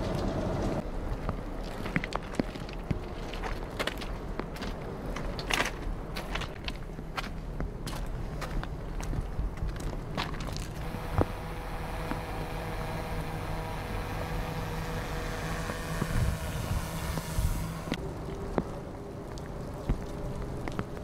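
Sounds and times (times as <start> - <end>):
locomotive engine humming: 0.0 - 1.0, 10.8 - 18.5
footsteps on track ballast: 0.2 - 11.3.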